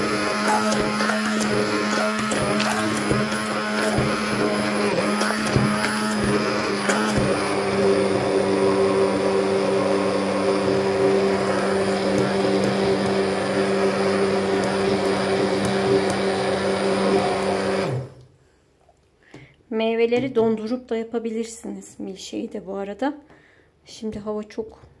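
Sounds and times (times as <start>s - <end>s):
hand blender motor running: 0.0s - 18.2s.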